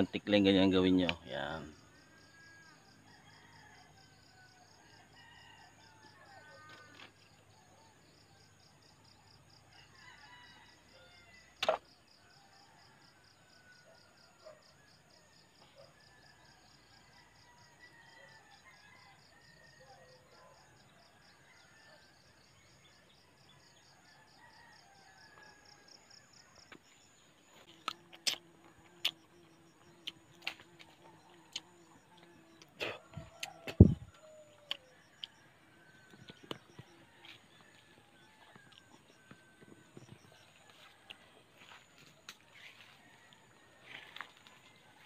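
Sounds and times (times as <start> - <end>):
insects chirring: 22.8 - 45.0.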